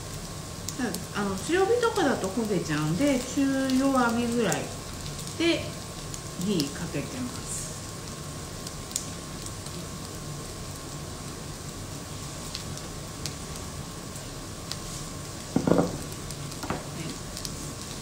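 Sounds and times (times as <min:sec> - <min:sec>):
batter sizzling in a pan: 0:00.0 - 0:18.0
short knock: 0:15.6 - 0:16.0.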